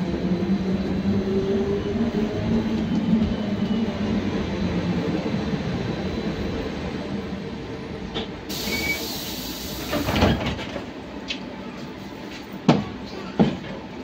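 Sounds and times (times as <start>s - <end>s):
trolleybus rumble: 0.0s - 14.0s
air hiss: 8.5s - 10.1s.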